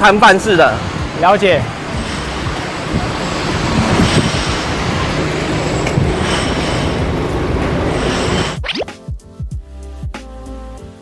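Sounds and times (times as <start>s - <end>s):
street traffic: 0.0s - 8.6s.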